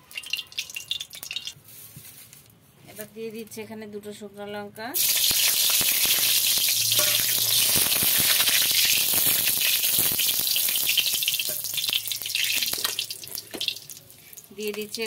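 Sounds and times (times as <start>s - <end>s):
chillies sizzling in hot oil: 0.0s - 1.6s, 5.0s - 15.0s
small crackling pops: 5.0s - 15.0s.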